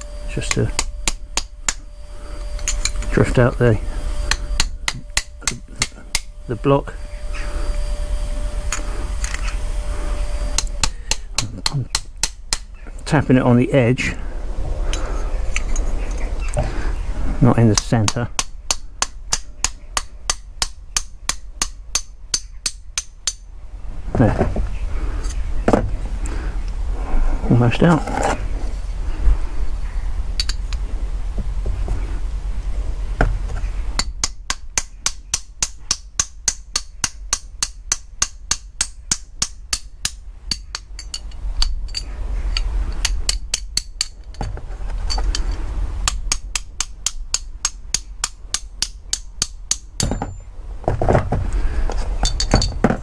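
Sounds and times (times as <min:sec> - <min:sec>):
hammer tapping metal drift: 0:00.0 - 0:01.9, 0:04.2 - 0:06.3, 0:10.5 - 0:12.9.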